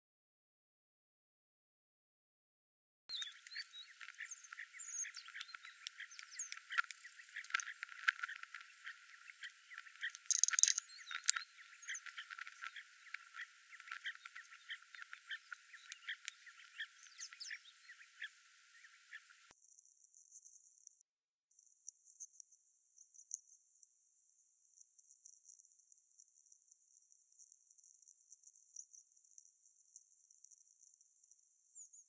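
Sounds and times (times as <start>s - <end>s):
bird chirps and calls: 3.1s - 19.5s.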